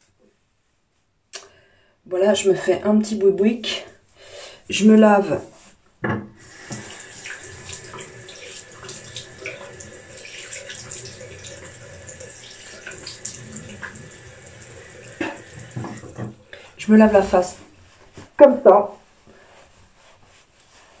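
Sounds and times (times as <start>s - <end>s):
water splashing on face: 6.4s - 16.5s
sink tap running: 6.4s - 17.5s.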